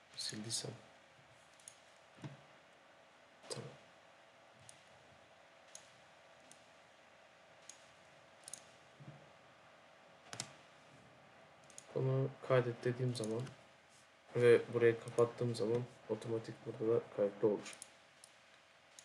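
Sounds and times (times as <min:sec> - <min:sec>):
faint room hiss: 0:00.0 - 0:19.0
computer mouse clicking: 0:01.5 - 0:02.4, 0:04.6 - 0:04.9, 0:05.7 - 0:06.7, 0:07.6 - 0:08.8, 0:10.3 - 0:10.6, 0:11.6 - 0:11.9, 0:13.1 - 0:13.6, 0:17.7 - 0:19.0.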